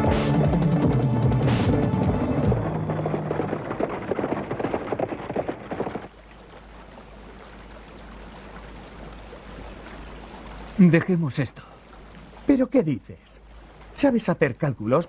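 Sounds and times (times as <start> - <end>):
galloping hooves: 1.7 - 10.8
wheels rattling: 2.0 - 6.3
faint steady hiss: 6.1 - 15.0.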